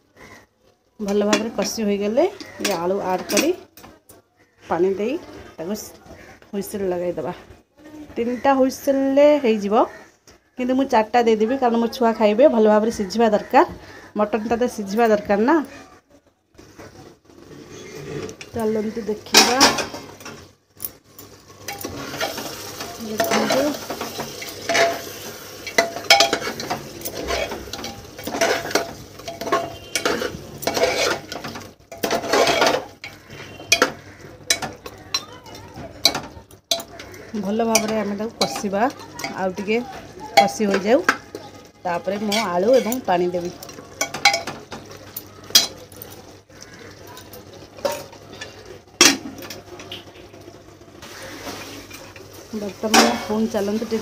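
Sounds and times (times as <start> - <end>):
meat sizzling: 16.5 - 54.0
steel spoon scraping metal pot: 17.3 - 35.3, 36.0 - 39.8, 40.4 - 44.5.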